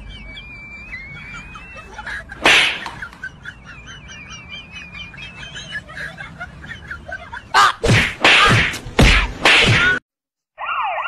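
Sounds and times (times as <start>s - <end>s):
bird-like chirping and whistles: 0.0s - 2.2s.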